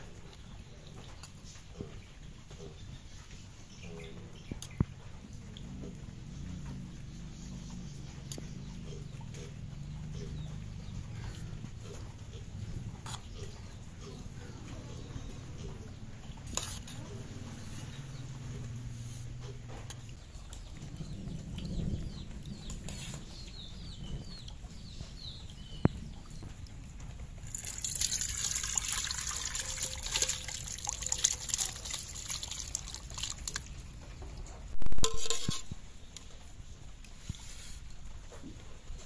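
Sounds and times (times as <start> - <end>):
thick liquid splashing into pot: 27.4 - 33.7.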